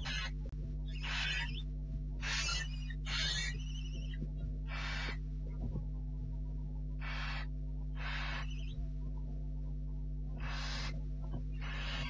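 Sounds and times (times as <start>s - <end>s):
owlets hissing begging calls: 0.0s - 0.3s, 1.0s - 1.6s, 2.2s - 5.2s, 7.0s - 8.7s, 10.4s - 10.9s, 11.6s - 12.0s
low electrical hum: 0.0s - 12.0s.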